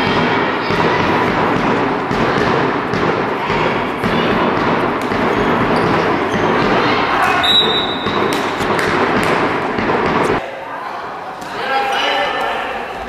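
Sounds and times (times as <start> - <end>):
handball thuds: 0.0 - 10.4
players' feet on hall floor: 0.0 - 10.4
echoing din of sports hall: 0.0 - 13.0.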